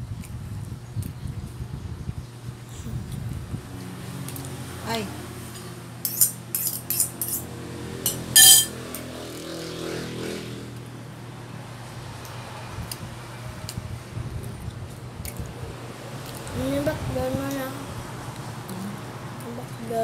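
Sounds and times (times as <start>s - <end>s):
metal utensils clinking on bowl: 6.1s - 7.5s, 8.1s - 9.1s.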